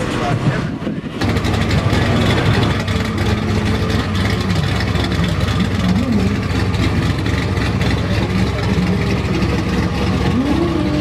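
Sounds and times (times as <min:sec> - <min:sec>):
car engine idling: 0:00.0 - 0:11.0
engine throttle blips: 0:00.0 - 0:11.0.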